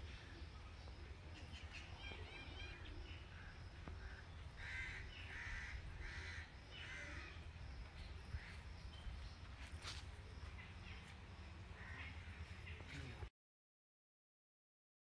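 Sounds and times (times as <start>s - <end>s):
faint high bird chirps: 0.0s - 3.8s
crow cawing: 3.4s - 7.4s, 11.8s - 12.4s.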